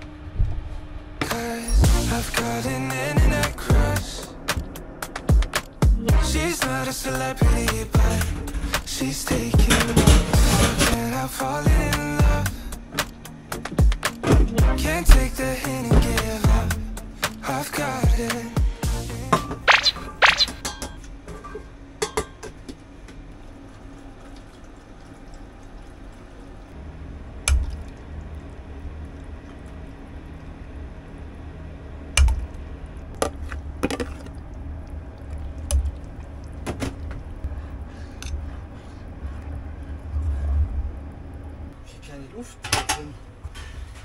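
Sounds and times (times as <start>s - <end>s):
low rumble: 26.8s - 41.8s.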